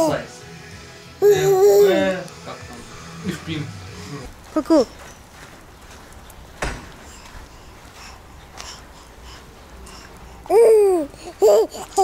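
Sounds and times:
baby cooing and babbling: 0:01.2 - 0:02.1, 0:10.4 - 0:12.0.

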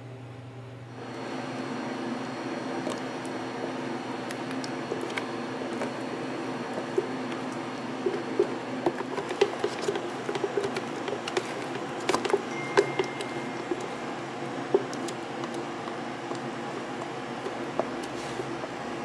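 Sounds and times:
steady background hum: 0:00.0 - 0:19.0
spatula scraping plastic jar: 0:04.9 - 0:13.9.

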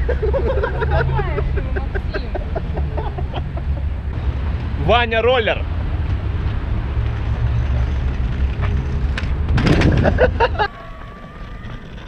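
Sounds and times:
scooter wheels rumbling: 0:06.0 - 0:12.0
wind on microphone: 0:07.0 - 0:12.0.

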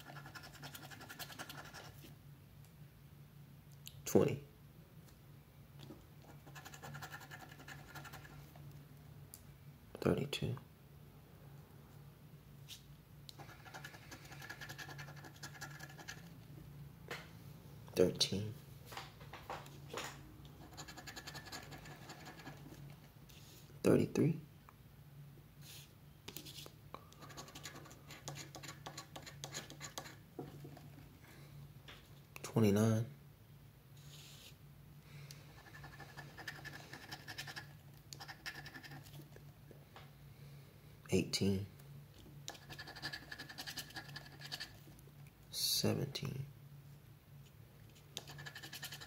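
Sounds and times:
scratching lottery ticket: 0:00.0 - 0:02.0, 0:06.3 - 0:08.4, 0:13.4 - 0:16.4, 0:20.6 - 0:22.8, 0:27.2 - 0:30.2, 0:35.6 - 0:39.3, 0:42.5 - 0:44.8, 0:48.2 - 0:49.0.

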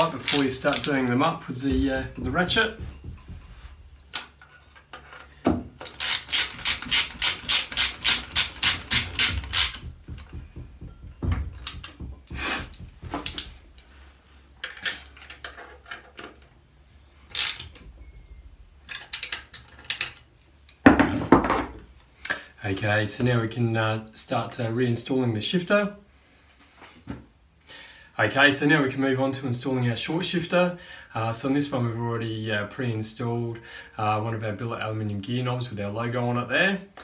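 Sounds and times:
metal rubbing and scraping: 0:00.0 - 0:10.9
loud knock: 0:01.7 - 0:03.8, 0:08.9 - 0:13.7
socket ratchet clicking: 0:05.8 - 0:10.4, 0:17.3 - 0:17.8.

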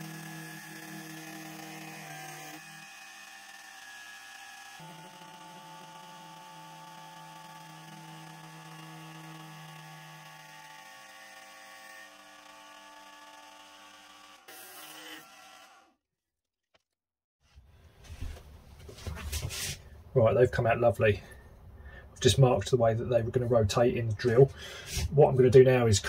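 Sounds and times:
metal lathe motor hum and whine: 0:00.0 - 0:13.6.

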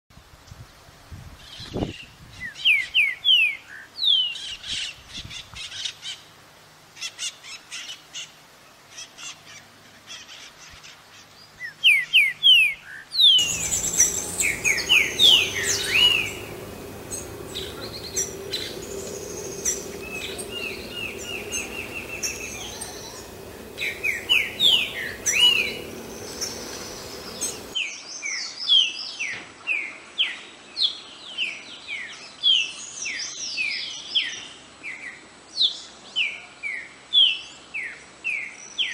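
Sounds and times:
bird singing whistled notes: 0:11.6 - 0:28.6.

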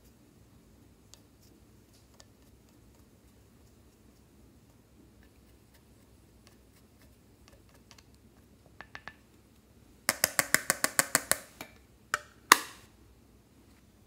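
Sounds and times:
spatula scraping powder: 0:01.1 - 0:08.0
plastic palette tapping on glass: 0:08.8 - 0:09.2, 0:10.1 - 0:11.5.

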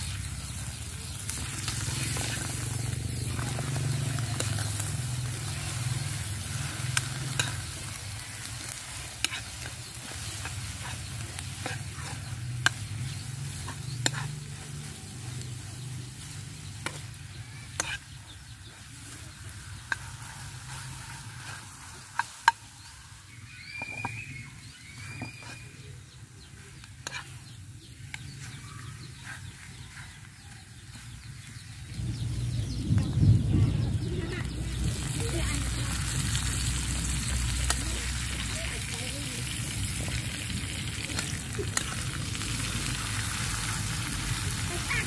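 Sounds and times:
eggs sizzling in a pan: 0:00.0 - 0:45.0
metal spatula scraping a pan: 0:01.6 - 0:18.2, 0:19.1 - 0:23.0, 0:26.7 - 0:27.5.

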